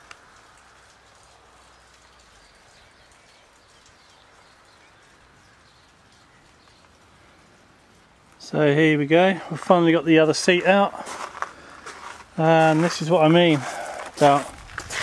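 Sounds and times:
faint birdsong chirps: 0:00.0 - 0:10.6
steady low hiss: 0:00.0 - 0:15.0.

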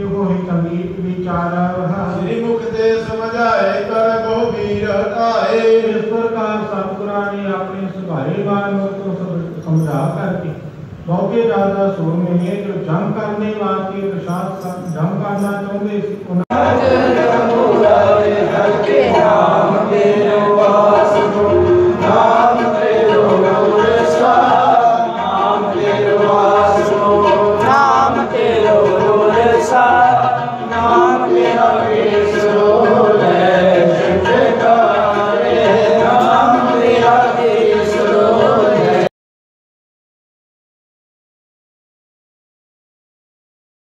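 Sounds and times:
voices chanting a hymn: 0:16.4 - 0:39.1.

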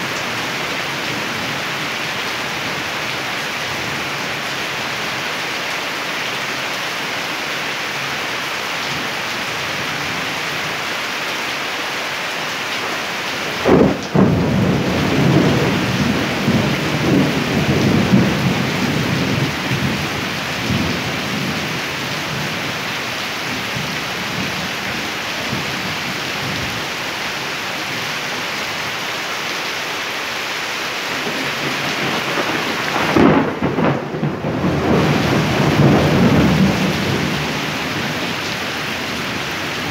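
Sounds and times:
heavy rain hissing: 0:00.0 - 0:39.9
thunder rumbling: 0:13.6 - 0:22.5, 0:31.1 - 0:39.9.

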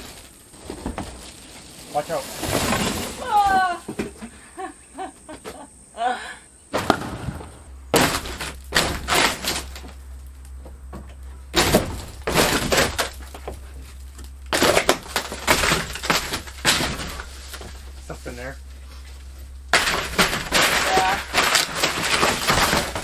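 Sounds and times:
plywood cracking and splintering: 0:07.9 - 0:10.6, 0:11.5 - 0:23.0.

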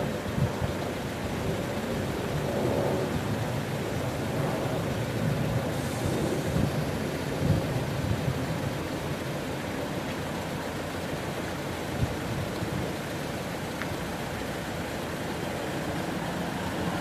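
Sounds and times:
wind buffeting microphone: 0:00.2 - 0:09.0.

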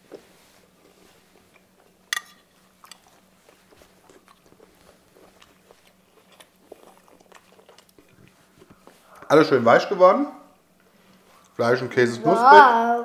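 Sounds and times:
soft chewing: 0:00.0 - 0:09.4, 0:10.6 - 0:11.7
cutlery clicks: 0:02.1 - 0:03.0
metal fork clinking on plate: 0:02.1 - 0:03.1.

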